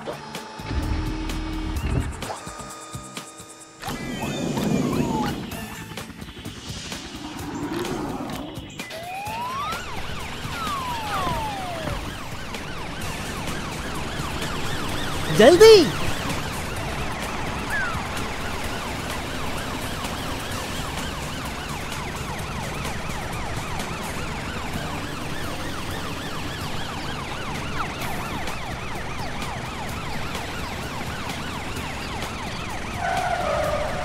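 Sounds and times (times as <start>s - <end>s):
cartoon sirens wailing: 7.0s - 34.0s.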